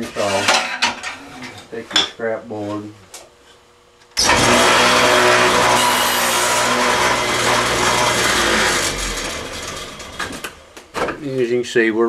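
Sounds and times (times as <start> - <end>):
table saw running: 4.2 - 10.8.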